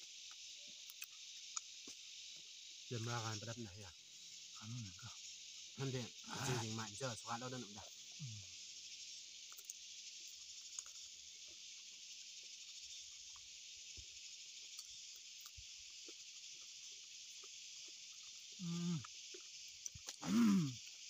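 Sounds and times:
insect chorus drone: 0.0s - 21.0s
chewing and eating clicks: 0.3s - 1.7s, 9.5s - 9.8s, 10.7s - 11.1s, 14.7s - 21.0s
person humming or speaking: 18.6s - 19.1s, 20.2s - 20.8s.

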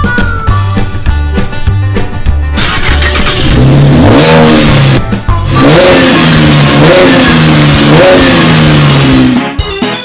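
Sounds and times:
car engine revving hard: 2.6s - 9.4s.

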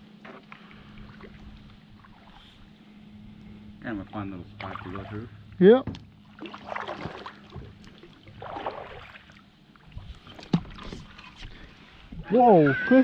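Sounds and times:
paddle splashing in water: 4.2s - 5.3s, 6.0s - 11.7s.

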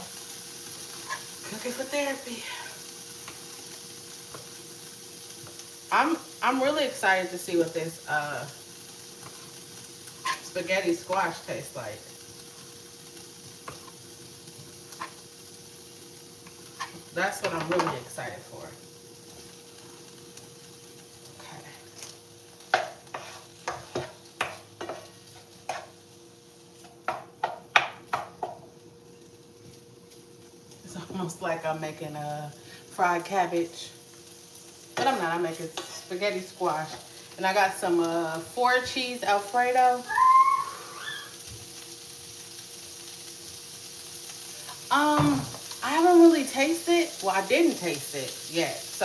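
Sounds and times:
food sizzling in pan: 0.0s - 49.0s
spatula knocking against pan: 27.1s - 28.6s.

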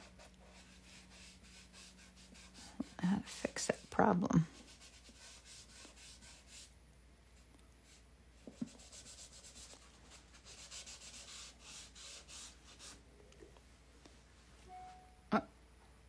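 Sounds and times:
rubbing strokes on wet paint: 0.0s - 6.8s, 7.4s - 13.0s.

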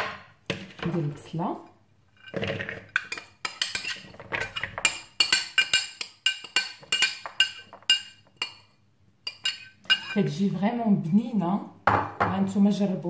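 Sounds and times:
glass bowl clinking: 2.2s - 8.7s, 9.3s - 10.2s.

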